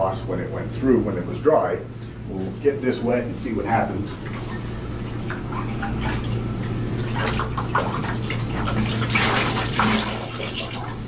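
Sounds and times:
water splashing in a plastic bucket: 5.2s - 11.0s.

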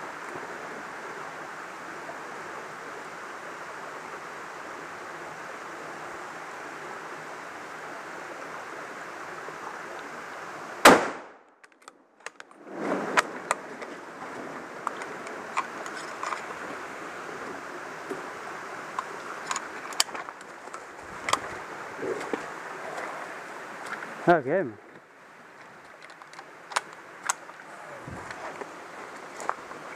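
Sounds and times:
stream running: 0.0s - 10.9s, 12.4s - 29.9s
close gunshot: 10.8s - 11.4s
handling clicks and rustles: 11.5s - 16.8s, 18.9s - 23.1s, 24.9s - 29.9s.

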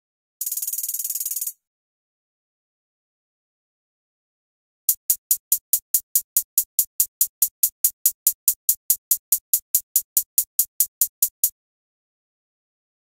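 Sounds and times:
closed hi-hat ticks: 0.4s - 1.6s, 4.9s - 11.6s.

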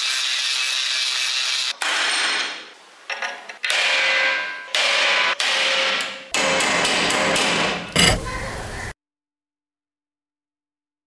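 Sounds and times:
hammer striking steel punch: 3.7s - 8.3s.

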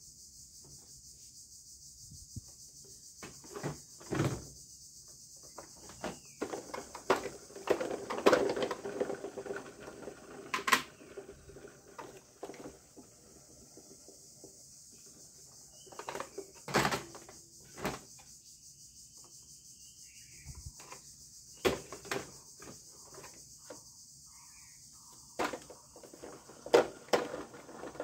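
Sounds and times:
plastic toy knocks and clatters: 5.5s - 13.0s, 15.8s - 18.0s, 21.6s - 23.4s, 25.4s - 28.0s.

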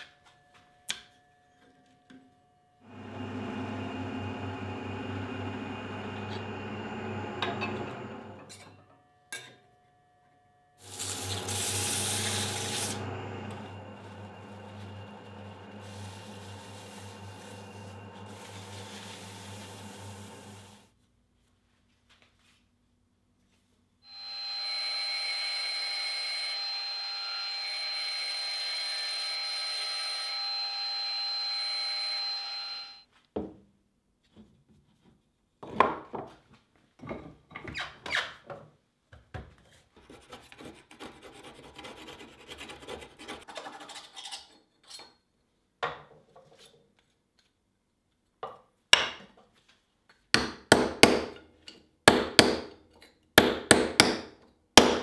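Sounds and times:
wood lathe whining: 2.8s - 8.5s, 10.8s - 20.8s, 24.1s - 33.0s
hammer striking a chisel: 50.4s - 51.4s, 52.1s - 52.8s, 53.4s - 55.0s.

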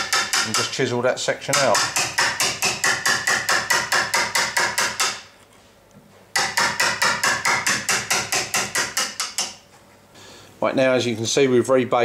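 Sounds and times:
hammer tapping wood chisel: 0.0s - 0.8s, 1.5s - 5.3s, 6.4s - 9.6s.

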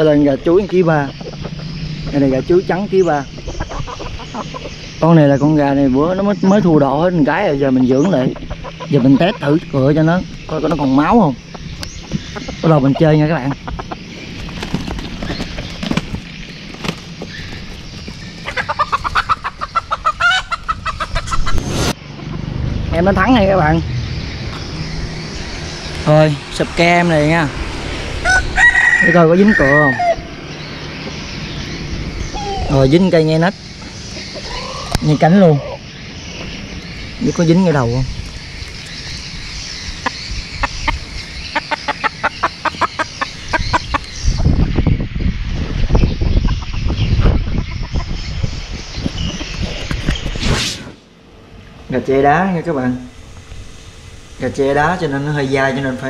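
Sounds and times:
rooster clucking: 0.5s - 4.9s, 7.5s - 9.8s, 11.4s - 22.5s, 28.2s - 30.4s, 33.9s - 35.8s, 40.0s - 44.1s
roosters scuffling: 13.1s - 20.8s.

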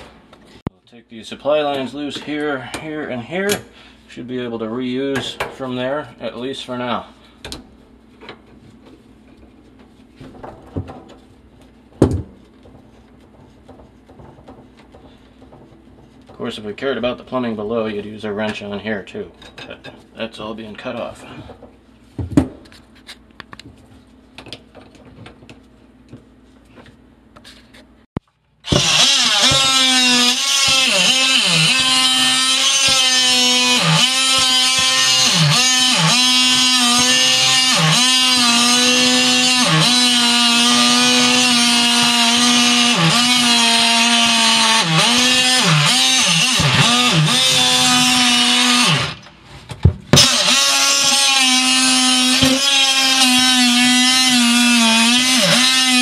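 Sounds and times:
oscillating multi-tool buzzing: 28.7s - 43.4s, 50.2s - 56.0s.

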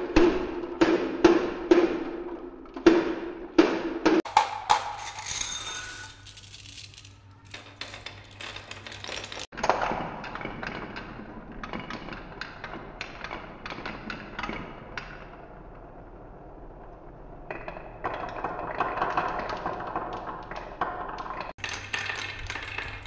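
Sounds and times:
marbles rolling on wooden track: 4.5s - 9.5s, 17.8s - 23.0s
marbles rattling in plastic toy: 4.8s - 9.5s.

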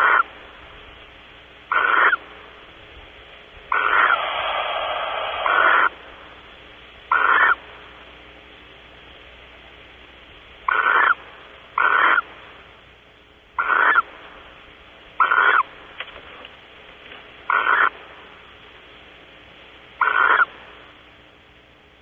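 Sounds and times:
barn owl calling: 0.0s - 0.4s, 1.6s - 2.4s, 3.6s - 6.4s, 7.0s - 7.9s, 10.6s - 12.6s, 13.5s - 15.9s, 17.4s - 18.4s, 20.0s - 20.9s.

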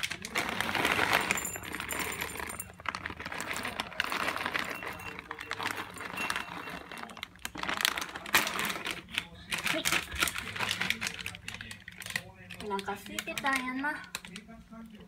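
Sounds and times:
kibble rattling into glass dish: 0.0s - 9.0s.

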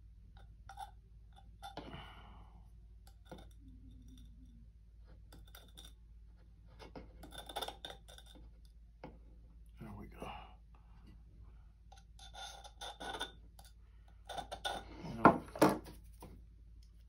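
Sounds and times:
knife scraping a mug rim: 3.1s - 4.4s, 6.7s - 8.5s, 11.9s - 15.2s.

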